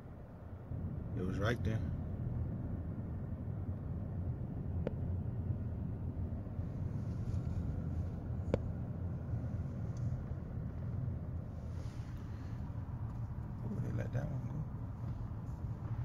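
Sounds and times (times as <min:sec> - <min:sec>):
car engine and tyres rumbling: 0:00.0 - 0:16.0.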